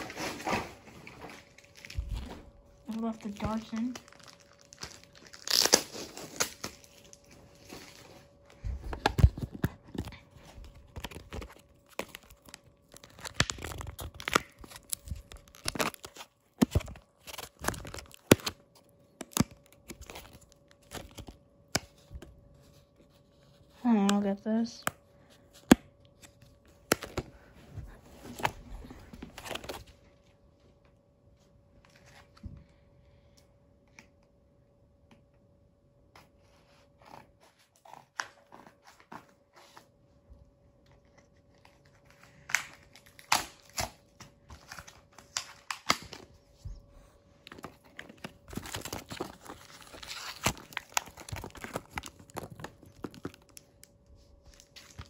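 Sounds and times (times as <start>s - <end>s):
plastic rustling: 0.0s - 24.8s, 41.4s - 55.0s.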